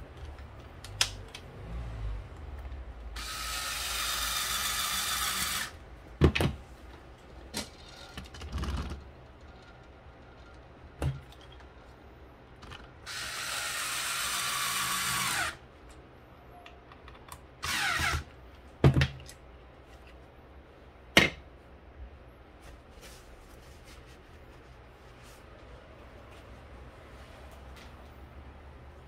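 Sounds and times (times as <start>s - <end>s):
small power tool running: 3.2s - 5.8s, 13.1s - 15.6s, 17.6s - 18.2s.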